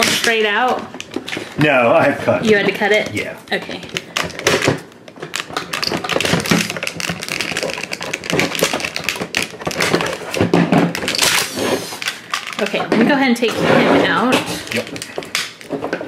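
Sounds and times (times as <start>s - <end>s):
plastic packaging crinkling: 3.2s - 12.8s, 14.5s - 16.0s.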